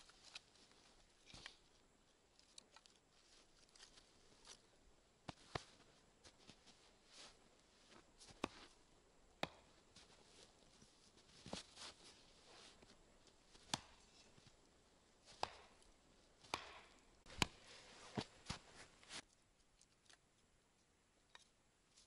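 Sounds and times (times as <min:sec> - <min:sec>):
blade chopping wood: 0:15.3 - 0:15.7, 0:16.4 - 0:17.5.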